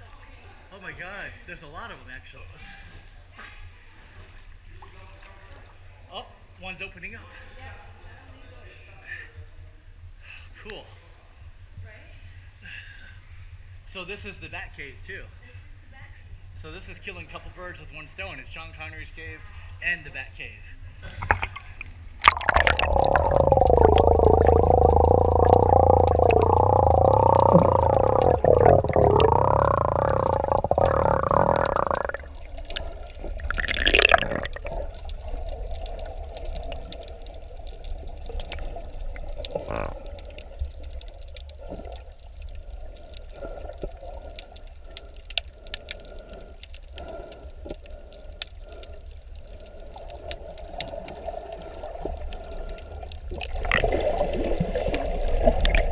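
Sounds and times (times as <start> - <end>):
underwater water noise: 20.8 - 55.9
muffled underwater hum: 21.1 - 55.9
burst of bubbles: 21.2 - 55.9
crackling clicks: 21.2 - 55.9.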